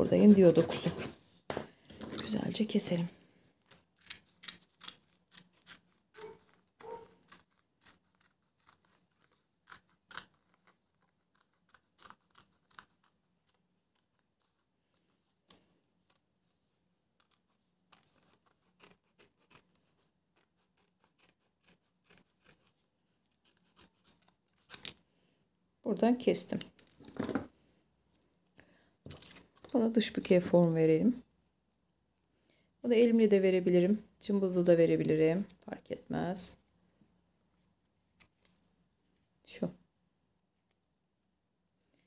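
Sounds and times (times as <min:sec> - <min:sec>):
scissors snipping paper: 0:03.7 - 0:14.6, 0:17.2 - 0:25.0.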